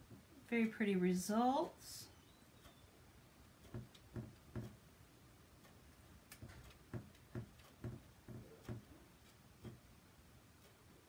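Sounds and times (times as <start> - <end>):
squeegee knocking and rubbing: 3.7 - 4.8.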